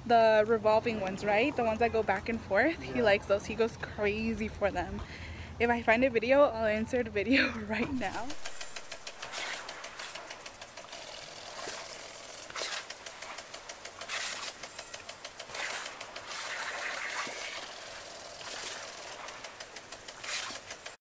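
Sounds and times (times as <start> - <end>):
lawn sprinkler ticking: 7.9 - 21.0
hissing bursts of spray: 8.0 - 21.0.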